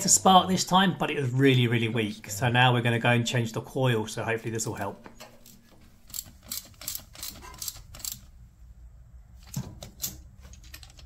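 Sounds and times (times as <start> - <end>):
socket ratchet clicking: 6.1 - 8.3.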